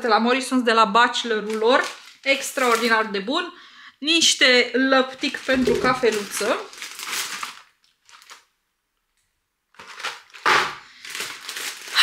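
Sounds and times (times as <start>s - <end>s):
shopping bags rustling: 6.0s - 8.4s, 11.0s - 12.0s.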